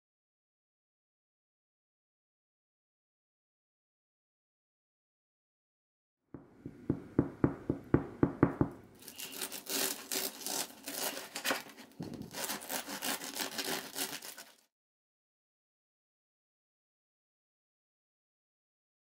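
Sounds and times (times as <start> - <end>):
sharp knocks: 6.4 - 8.9
bread knife sawing through crust: 9.1 - 14.6.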